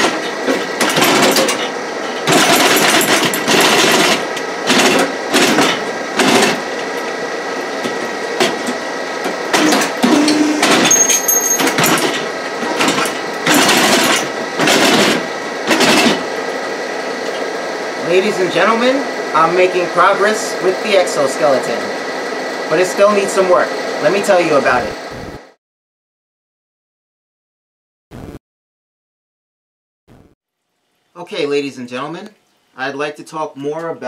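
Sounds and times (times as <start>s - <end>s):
hydraulic power unit running: 0.0s - 25.6s.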